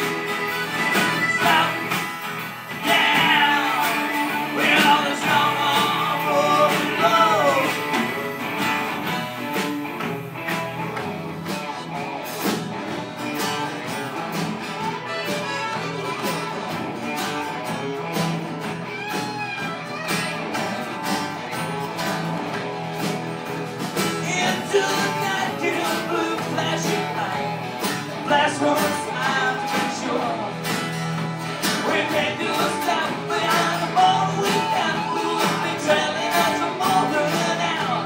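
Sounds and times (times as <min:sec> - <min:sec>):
accordion: 0:00.0 - 0:13.0, 0:13.7 - 0:24.2
acoustic guitar: 0:00.0 - 0:38.0
drums with steady beat: 0:00.0 - 0:38.0
electric guitar: 0:00.0 - 0:38.0.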